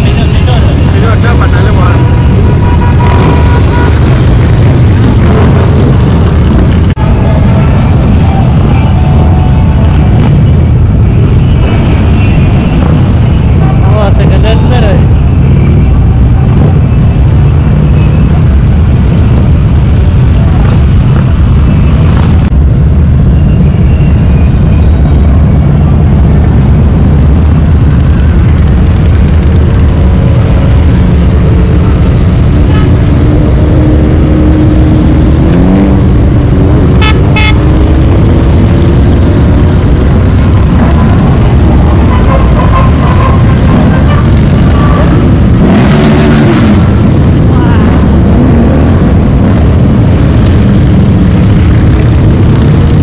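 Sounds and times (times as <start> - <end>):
road traffic rumble: 0.0 - 53.0
short pitched horn tones: 37.0 - 37.6.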